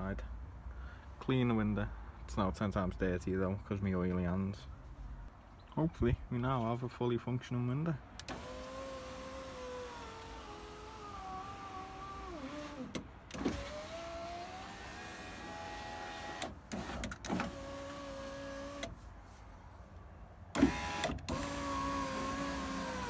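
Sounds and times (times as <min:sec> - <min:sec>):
electric window motor whining: 0:08.2 - 0:19.0, 0:20.5 - 0:23.0.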